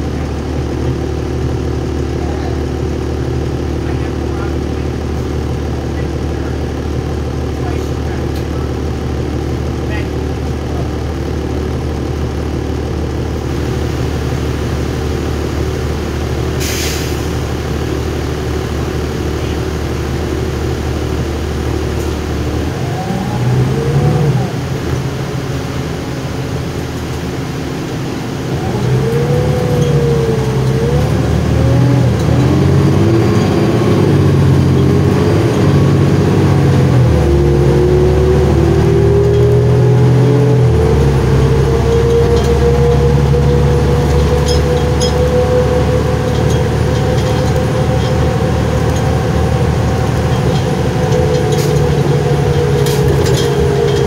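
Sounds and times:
diesel bus engine: 0.0 - 54.0
short hiss: 16.6 - 17.2
rising whine: 27.6 - 54.0.

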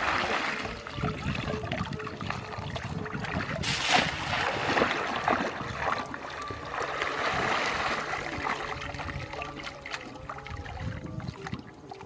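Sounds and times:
muddy water sloshing and splashing: 0.0 - 12.0
water pouring out of a basket: 2.9 - 10.4.

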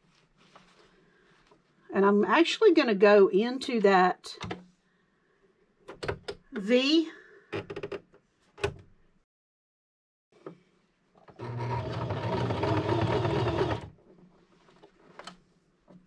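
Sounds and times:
electric sewing machine running: 11.4 - 13.9.

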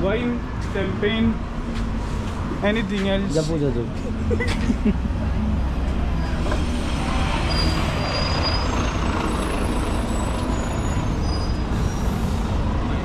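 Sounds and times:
traffic rumble and hiss: 0.0 - 13.0
faint high squeaks: 7.3 - 12.3.

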